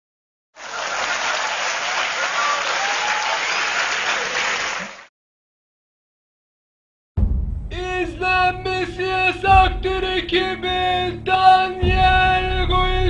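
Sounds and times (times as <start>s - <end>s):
crowd applauding and cheering: 0.6s - 5.1s.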